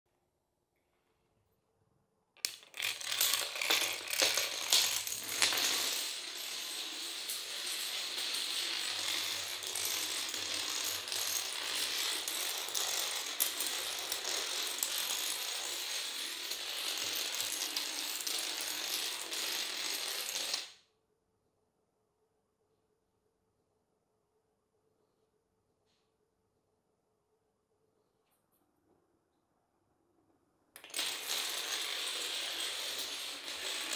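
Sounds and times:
toy dominoes toppling: 2.4 - 20.8, 30.8 - 33.9.

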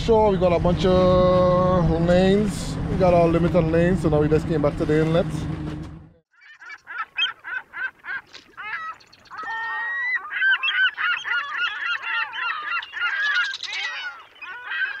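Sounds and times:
birds honking: 6.3 - 15.0.

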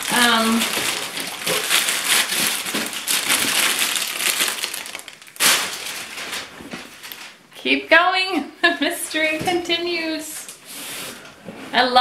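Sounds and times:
packaging crunch: 0.0 - 7.4
packaging rustling and crinkling: 0.0 - 7.5.

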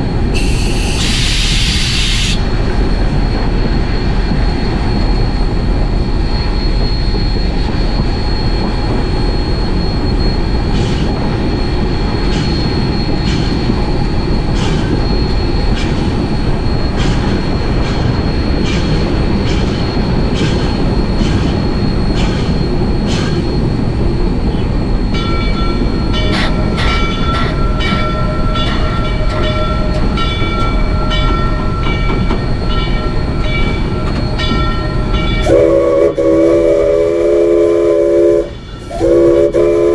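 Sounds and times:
high steady squeal: 0.0 - 39.9
steam locomotive rumbling with clicks: 0.0 - 39.9.

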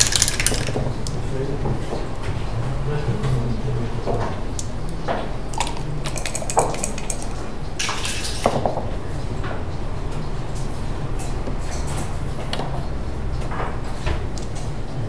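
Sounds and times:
checkers clicking on board: 0.0 - 0.8, 5.5 - 8.4
dice rattling onto board: 0.0 - 0.9, 5.5 - 8.6.

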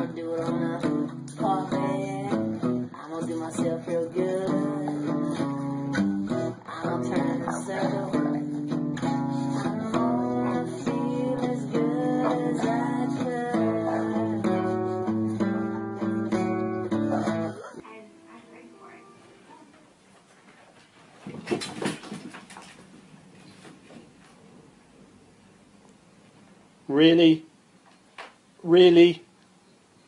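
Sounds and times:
acoustic guitar music: 0.0 - 19.9.

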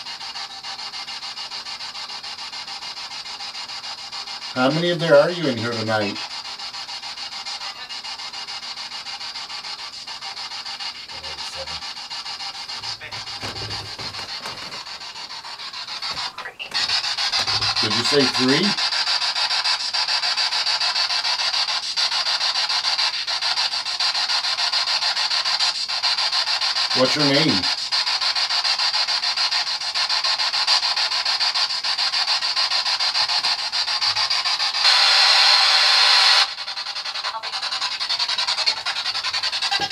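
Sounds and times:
fluttering radio static: 0.0 - 39.9
faint radio snatches: 9.6 - 18.9.

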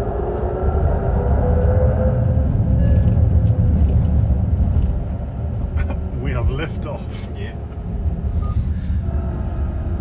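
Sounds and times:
synthesized engine note: 0.0 - 4.3
electric car motor and road rumble: 0.0 - 10.0.

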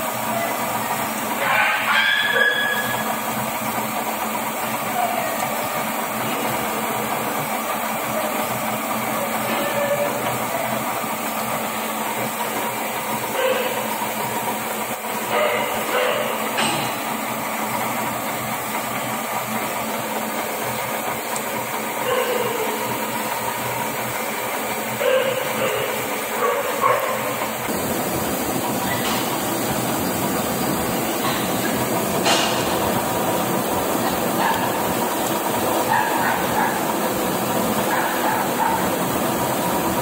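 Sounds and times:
metal lathe running: 0.0 - 40.0.

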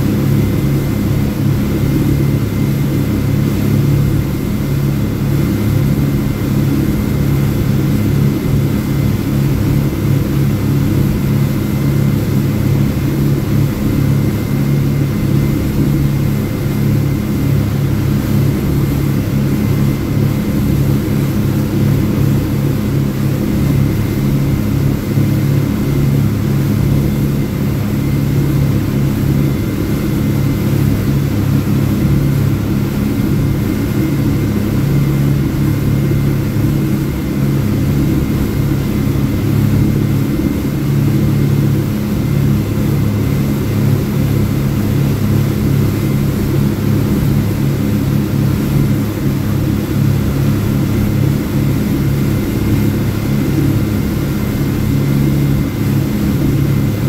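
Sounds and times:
outboard engines running: 0.0 - 57.0.

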